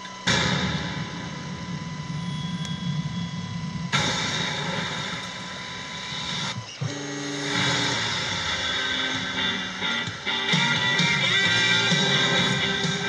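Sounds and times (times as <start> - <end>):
stepper motor tones: 0.0 - 13.0.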